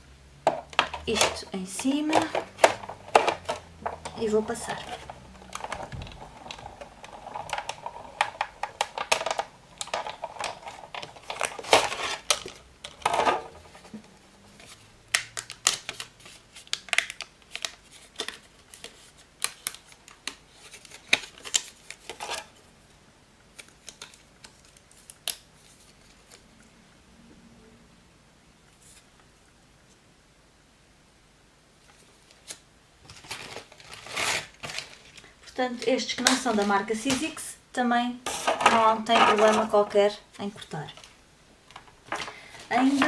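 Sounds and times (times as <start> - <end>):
plastic plates clacking: 0.5 - 14.1, 38.3 - 40.0
paper rustling: 0.8 - 22.6, 23.5 - 26.4, 31.8 - 37.5, 38.2 - 43.0.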